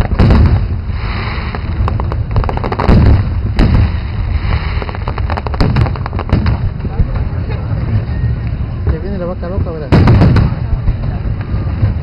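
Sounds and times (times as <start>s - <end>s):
firework shells booming: 0.0s - 7.2s, 9.9s - 11.2s
crackle of small pops: 1.5s - 3.8s, 4.5s - 6.7s.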